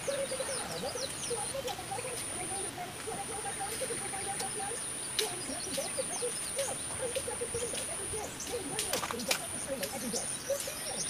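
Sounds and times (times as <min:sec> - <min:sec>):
animal chirping calls: 0:00.0 - 0:11.0.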